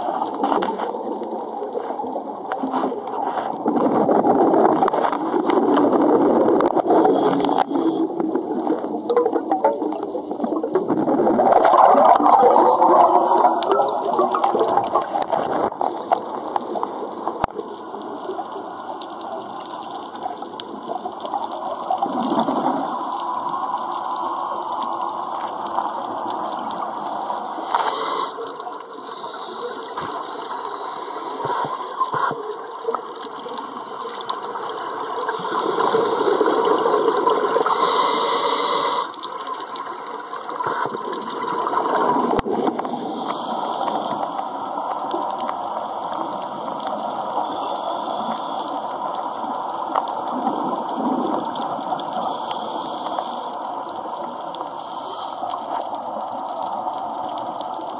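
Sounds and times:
underwater rush of water: 0:00.0 - 0:57.9
diver's exhaled bubbles: 0:02.6 - 0:18.4, 0:21.6 - 0:23.0, 0:34.4 - 0:38.0, 0:40.3 - 0:44.1, 0:50.3 - 0:52.2.

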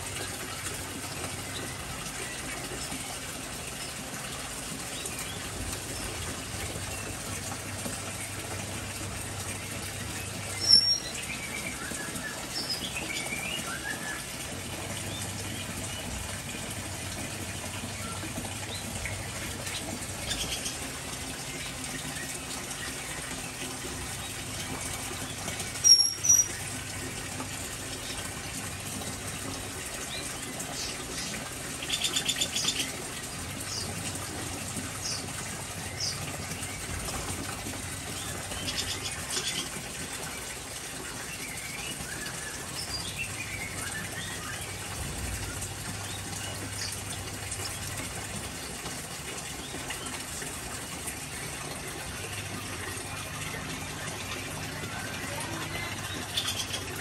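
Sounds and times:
songbirds chirping and whistling: 0:10.0 - 0:16.2, 0:25.1 - 0:26.8.

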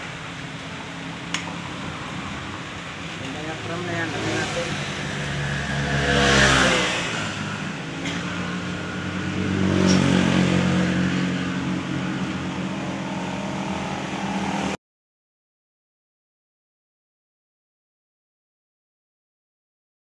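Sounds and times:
vehicle engine revving: 0:00.0 - 0:14.8.

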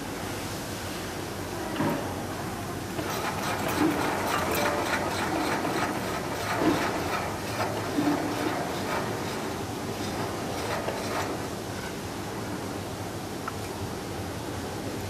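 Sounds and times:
grinding machine hissing: 0:02.9 - 0:12.7
grinding wheel rasping strikes: 0:03.0 - 0:12.0.

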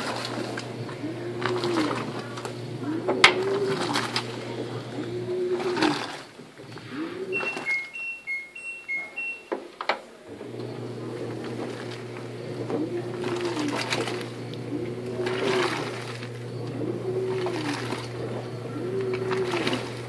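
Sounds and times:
washing machine agitating whine: 0:00.0 - 0:09.4, 0:10.0 - 0:20.0
washing machine motor hum: 0:00.0 - 0:20.0
water sloshing: 0:00.0 - 0:20.0
two-tone beeps: 0:07.2 - 0:09.7.

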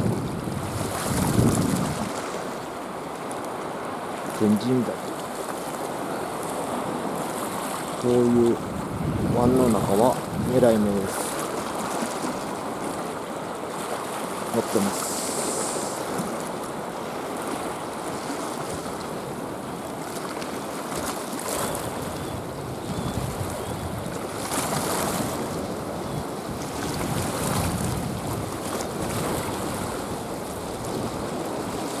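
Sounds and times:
wind on microphone: 0:00.0 - 0:02.5, 0:06.1 - 0:12.6, 0:21.0 - 0:32.0
small waves lapping on rocky shore: 0:00.0 - 0:32.0.

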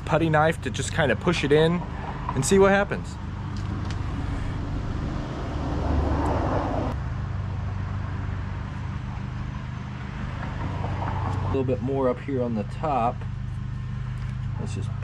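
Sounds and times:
low outdoor background hum: 0:00.0 - 0:15.0
loud rushing noise: 0:03.7 - 0:07.0.

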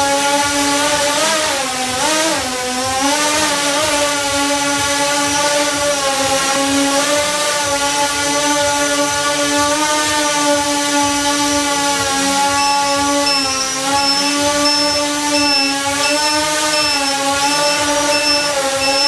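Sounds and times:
drone motors buzzing hum: 0:00.0 - 0:19.0
short high beeps: 0:12.5 - 0:19.0.

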